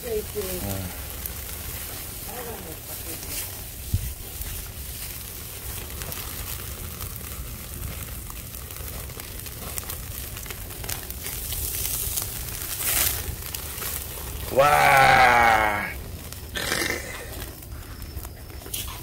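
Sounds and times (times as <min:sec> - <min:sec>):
fire rushing and crackling: 0:00.0 - 0:19.0
meat sizzling on a grill: 0:00.0 - 0:19.0.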